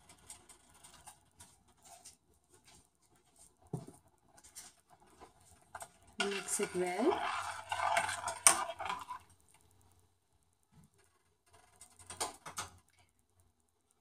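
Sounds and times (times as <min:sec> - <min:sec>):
spoon scraping metal pot: 0:04.6 - 0:09.3.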